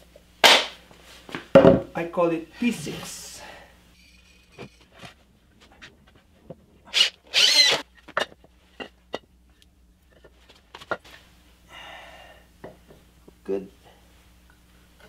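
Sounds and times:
harsh rasping burst: 6.9s - 7.8s.

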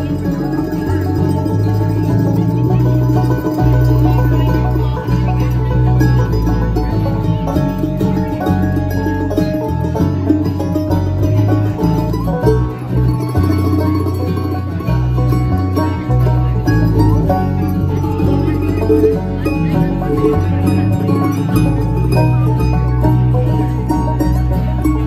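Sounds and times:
banjo: 0.0s - 25.0s
bluegrass band playing: 0.0s - 25.0s
electric bass notes: 0.0s - 25.0s.

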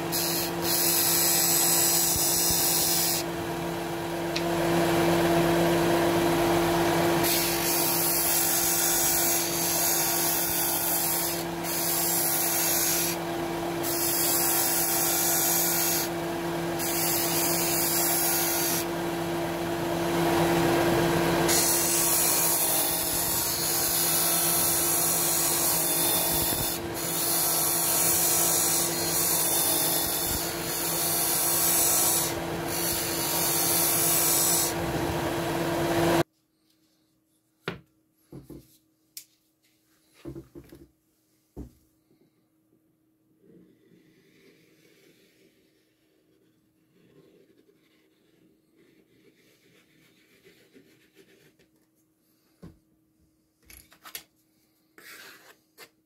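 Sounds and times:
disc sander motor hum: 23.2s - 36.2s.

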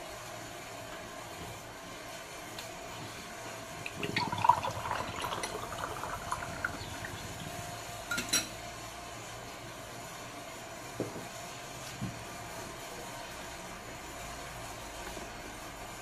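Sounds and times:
juice pouring into glass mug: 3.9s - 7.7s.

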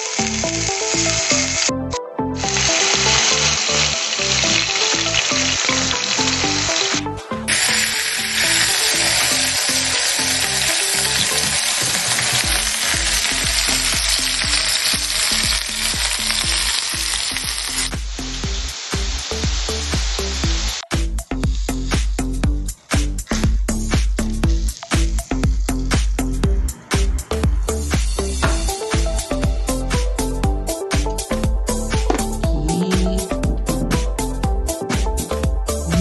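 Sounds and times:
burger patties sizzling in pan: 0.0s - 1.7s, 2.4s - 22.4s
background music: 0.0s - 36.0s.

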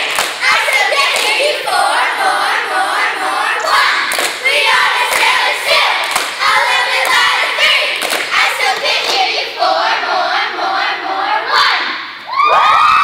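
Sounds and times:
sharp claps: 0.0s - 1.4s, 4.1s - 4.5s, 6.0s - 7.3s, 7.9s - 9.2s
girls chanting a cheer: 0.0s - 12.2s.

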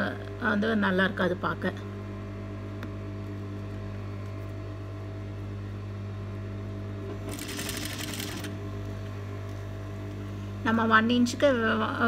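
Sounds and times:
sewing machine humming: 7.0s - 8.6s
rapid sewing machine stitching: 7.2s - 8.5s.

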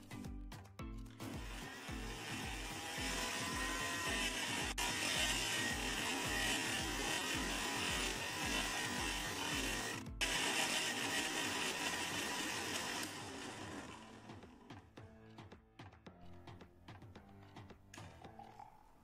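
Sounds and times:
background music with steady beat: 0.0s - 19.0s
electric blender running: 1.2s - 14.8s.

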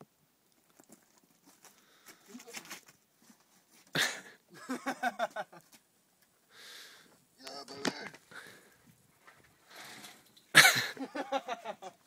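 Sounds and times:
person laughing: 4.0s - 5.6s, 10.6s - 12.0s.

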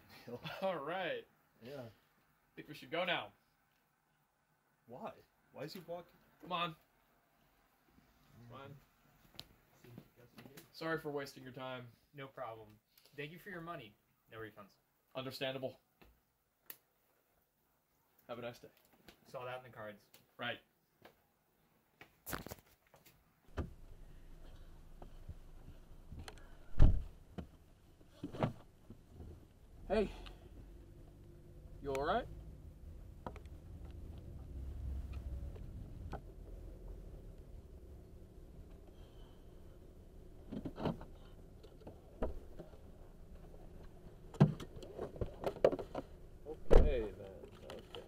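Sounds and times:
steady low hum: 23.5s - 28.0s, 28.8s - 47.8s
heavy low thump: 26.7s - 27.2s, 46.6s - 47.1s
car door clunk: 44.3s - 47.0s.

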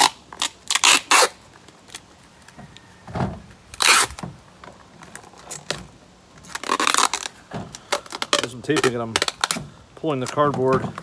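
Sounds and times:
packing tape ripping: 0.0s - 2.1s, 3.7s - 4.3s, 5.1s - 9.6s.

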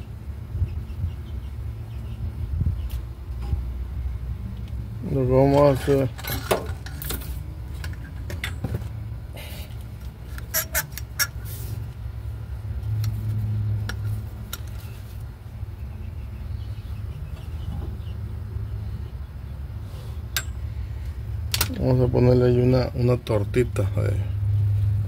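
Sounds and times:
metal tools clinking: 5.5s - 8.7s.

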